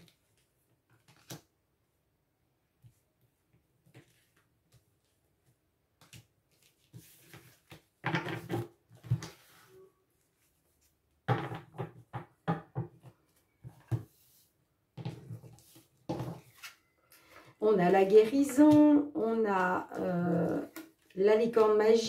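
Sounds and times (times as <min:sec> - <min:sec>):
cards being shuffled: 0:00.1 - 0:01.5.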